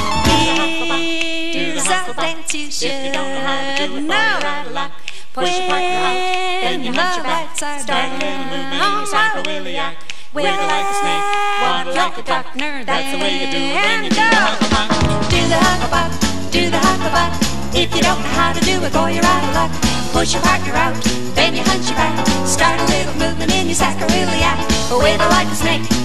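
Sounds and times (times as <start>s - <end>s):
group singing a cappella: 0.2s - 26.0s.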